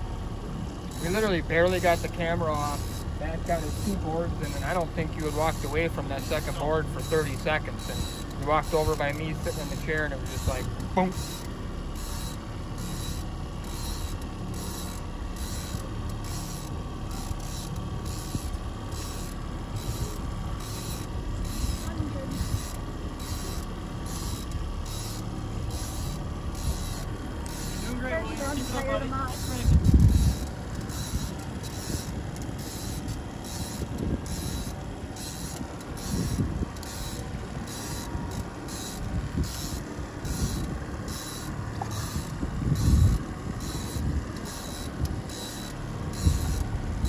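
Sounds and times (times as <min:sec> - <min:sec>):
outboard motor running: 0:00.0 - 0:47.0.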